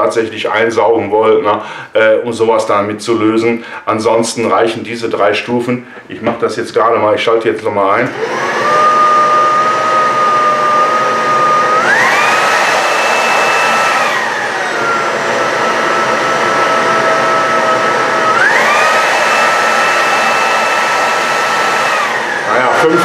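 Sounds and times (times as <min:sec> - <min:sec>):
cordless vacuum motor whine: 0:08.1 - 0:23.0.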